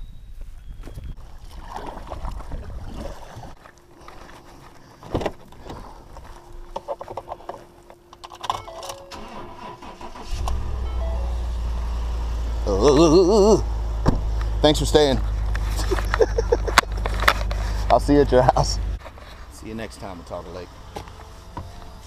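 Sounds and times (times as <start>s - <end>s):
pickup truck engine idling: 9.3s - 22.0s.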